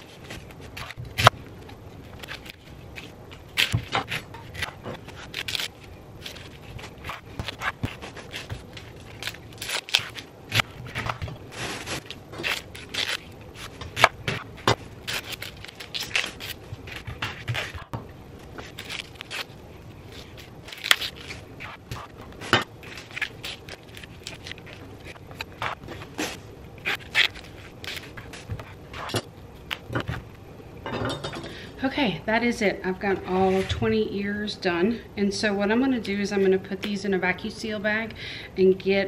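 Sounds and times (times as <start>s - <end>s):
corn husks crunching and scraping: 2.0s - 29.9s.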